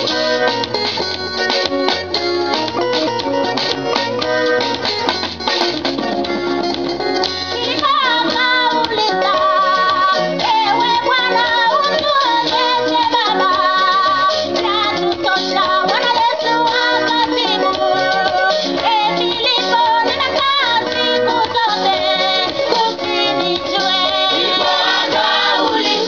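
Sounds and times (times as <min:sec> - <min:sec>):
instrumental backing with bass beat: 0:00.0 - 0:26.0
women's choir singing gospel: 0:07.8 - 0:26.0.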